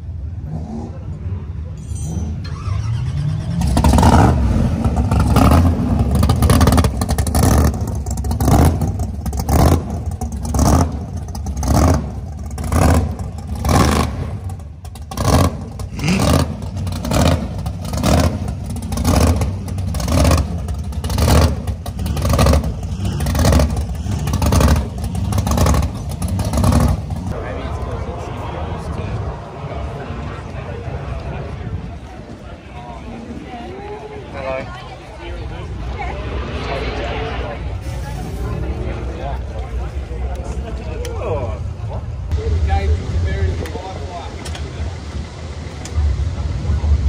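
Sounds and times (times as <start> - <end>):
pickup engine lumpy idle: 6.0 - 13.7, 14.3 - 28.2.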